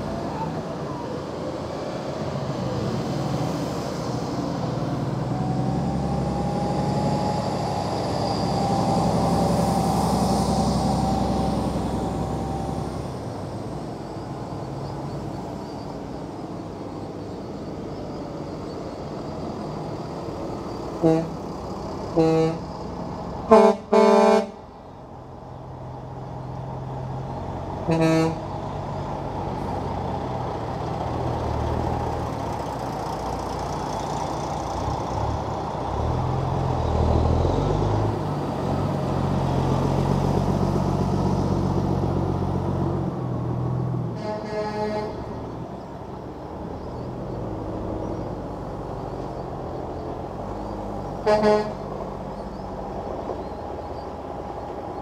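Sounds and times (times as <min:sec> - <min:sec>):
heavy trucks driving past: 0:00.0 - 0:55.0
truck horn blasts: 0:21.0 - 0:21.4, 0:22.1 - 0:22.7, 0:23.5 - 0:24.6, 0:27.9 - 0:28.5, 0:44.2 - 0:45.3, 0:51.2 - 0:51.9.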